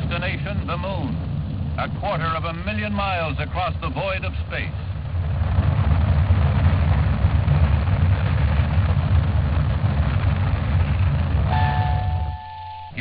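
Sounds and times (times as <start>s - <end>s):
rocket launch rumble and roar: 0.0s - 13.0s.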